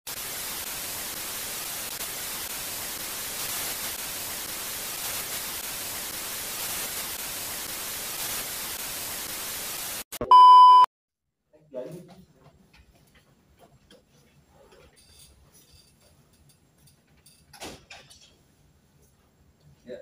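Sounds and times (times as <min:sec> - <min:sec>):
static hiss: 0:00.1 - 0:10.1.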